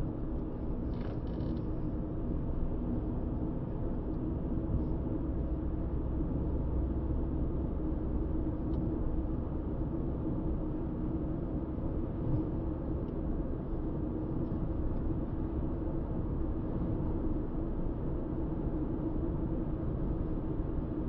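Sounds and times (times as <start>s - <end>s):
interior ticks and creaks: 0.9s - 1.7s.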